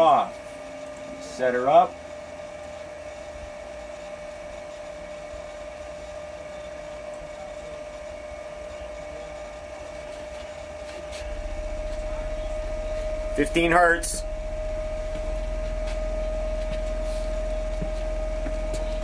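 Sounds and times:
electrical whine: 0.0 - 19.0
fan hiss: 0.0 - 19.0
low hum: 7.1 - 19.0.

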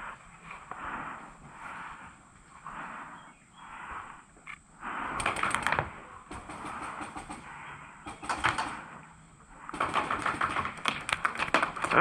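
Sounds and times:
airsoft gunfire bursts: 5.2 - 9.0, 9.7 - 12.0.

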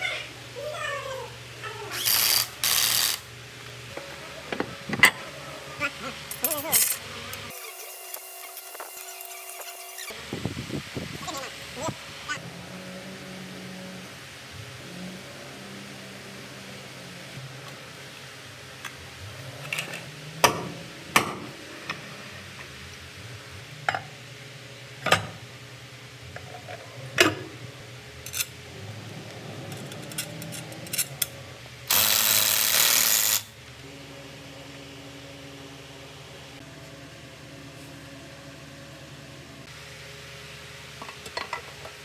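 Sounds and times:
metal parts clinking: 6.3 - 9.7, 29.7 - 31.3.

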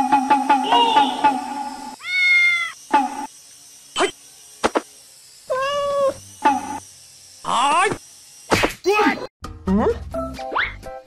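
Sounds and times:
cat meowing: 2.0 - 2.8.

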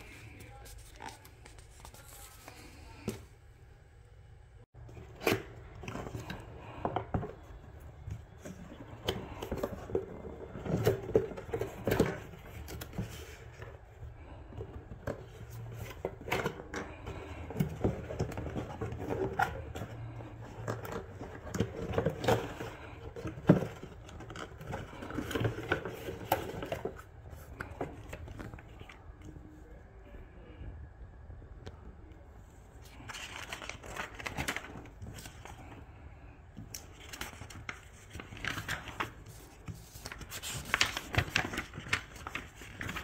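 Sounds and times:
paper sheet rustling: 0.0 - 3.1, 32.9 - 35.8, 36.6 - 43.0.

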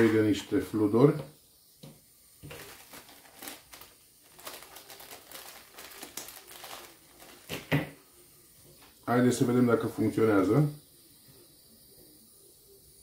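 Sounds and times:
solder wire crinkling: 0.0 - 0.6, 1.8 - 7.9.

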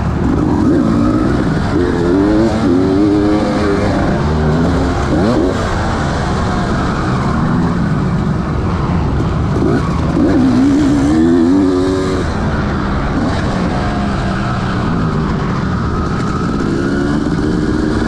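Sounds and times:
motocross bike engine revving: 0.0 - 18.0
steady rushing noise: 0.0 - 18.0.

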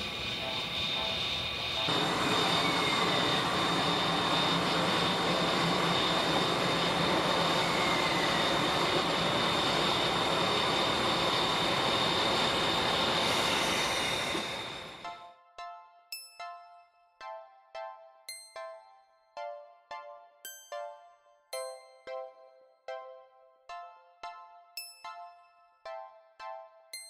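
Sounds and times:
steam locomotive hissing steam: 0.0 - 15.1.

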